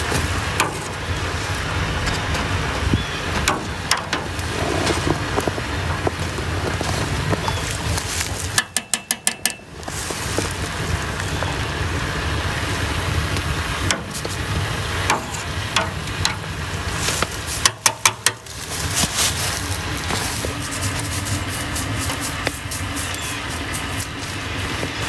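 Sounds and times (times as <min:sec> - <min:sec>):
sap boiling in a pan: 0:00.0 - 0:25.0
skimmer rapped against metal rim: 0:08.5 - 0:09.7, 0:13.8 - 0:14.4, 0:15.0 - 0:16.5, 0:17.2 - 0:18.5.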